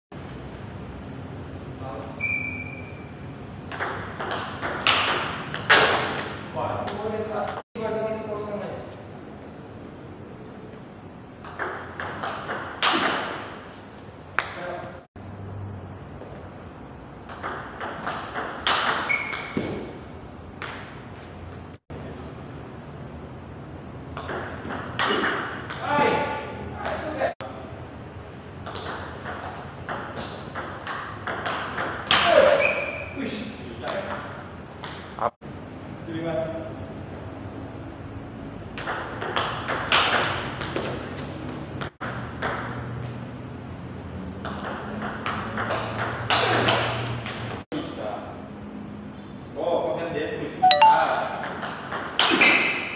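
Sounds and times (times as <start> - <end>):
high squeak: 2.2 - 3.2.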